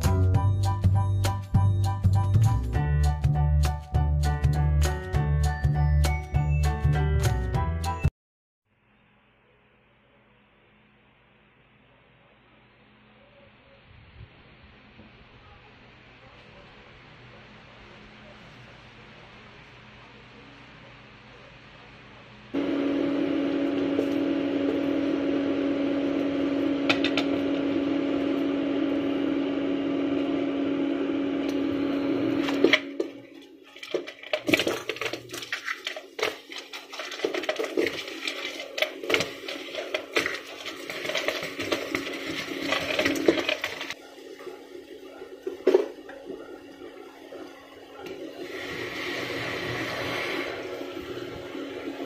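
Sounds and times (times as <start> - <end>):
crabs clattering in metal pot: 33.2 - 44.0.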